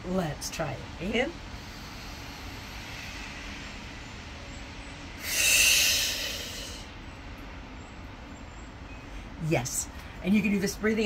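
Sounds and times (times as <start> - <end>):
woman exhaling through pursed lips: 1.5 - 3.7, 5.2 - 6.9
woman inhaling through nose: 1.5 - 3.8, 5.2 - 6.9.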